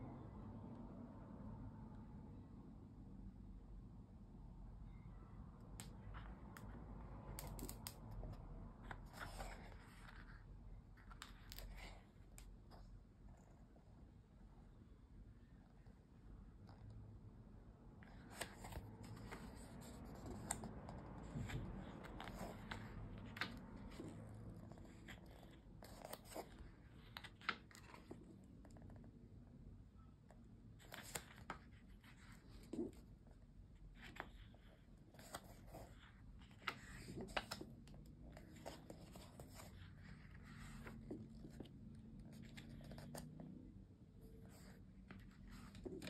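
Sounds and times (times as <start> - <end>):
paper pages turning: 5.8 - 12.8, 18.0 - 28.8, 30.8 - 43.4, 44.4 - 46.0
paper rustling: 7.4 - 12.2, 18.0 - 28.3, 30.8 - 33.0, 34.0 - 43.3, 44.4 - 46.0.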